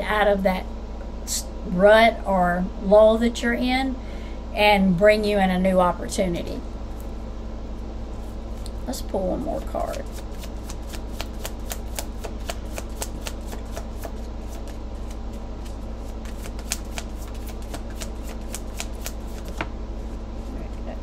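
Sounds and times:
low steady hum: 0:00.0 - 0:21.0
cards being shuffled: 0:09.9 - 0:19.7.

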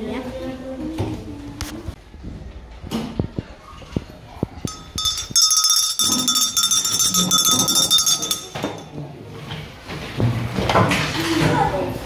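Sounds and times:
electric school bell ringing: 0:04.7 - 0:09.0.

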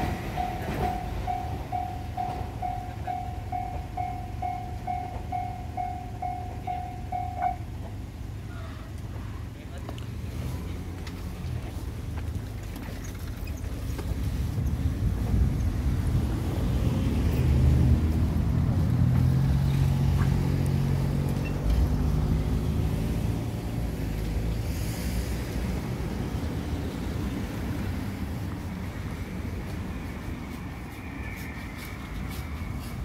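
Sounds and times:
vehicle passing: 0:14.3 - 0:33.0.

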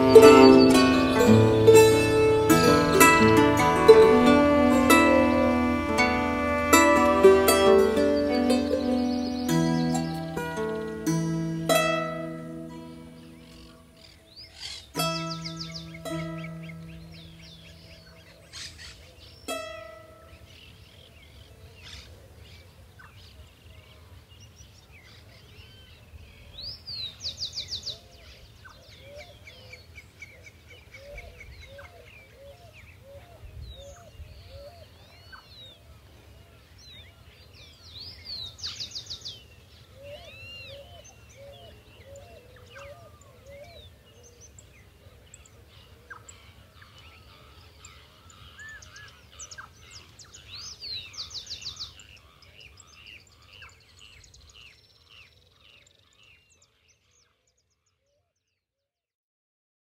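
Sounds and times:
birds chirping: 0:00.0 - 0:33.2, 0:36.6 - 0:57.2
bird singing loud phrase: 0:07.6 - 0:22.1, 0:36.8 - 0:58.6.

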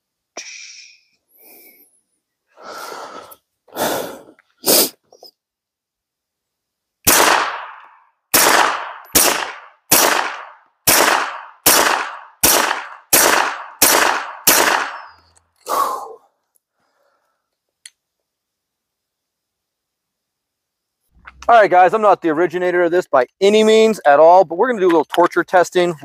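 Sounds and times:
pistol gunshots: 0:07.0 - 0:15.2
dull gunshot report: 0:07.1 - 0:15.1.

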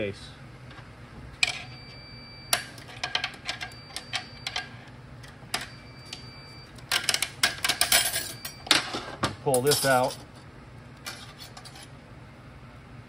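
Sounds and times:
pick tool scraping metal ring: 0:11.1 - 0:11.9.

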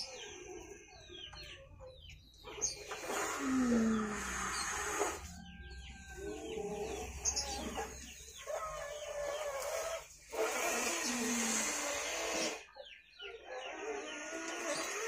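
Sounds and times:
chickens clucking: 0:00.0 - 0:15.0
small birds chirping: 0:00.0 - 0:15.0
breathy hiss: 0:02.9 - 0:05.4.

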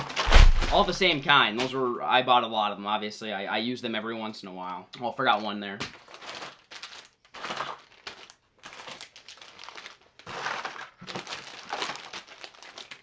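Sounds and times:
plastic bags crinkling: 0:00.0 - 0:01.2, 0:05.3 - 0:13.0
packaging clicks: 0:05.9 - 0:13.0.

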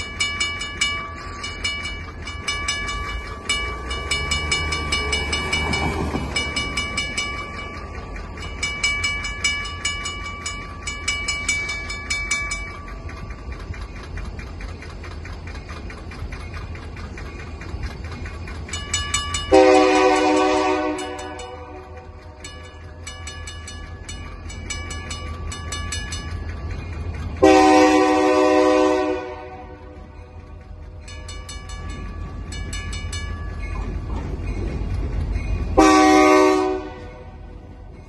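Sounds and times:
crossing bell ringing rapidly: 0:00.0 - 0:38.0
diesel locomotive rumble: 0:00.0 - 0:38.0
locomotive air horn: 0:19.5 - 0:22.0, 0:27.4 - 0:30.0, 0:35.8 - 0:37.5.

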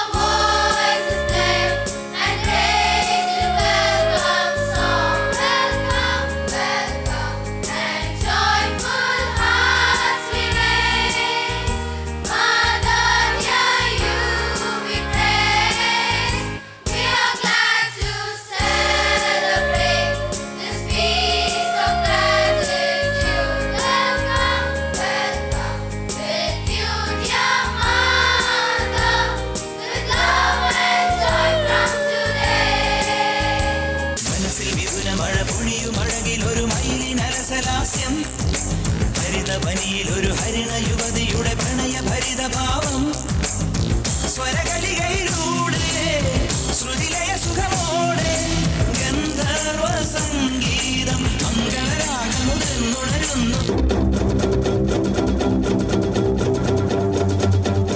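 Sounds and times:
girls' choir singing: 0:00.0 - 0:11.7, 0:12.3 - 0:34.1
music accompaniment with beat: 0:00.0 - 0:57.9
girl singing solo: 0:00.2 - 0:07.1, 0:30.1 - 0:34.2.

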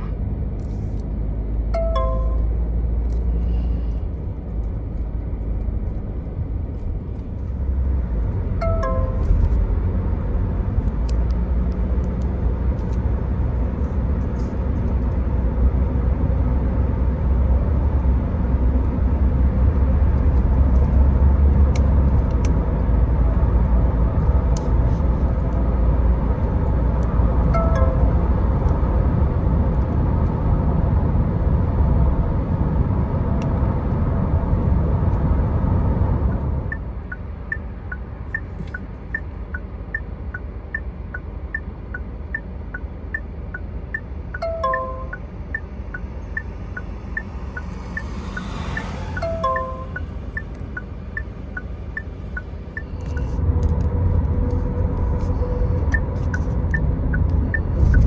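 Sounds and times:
road and engine rumble: 0:00.0 - 0:58.0
descending electronic chime: 0:44.4 - 0:50.5.

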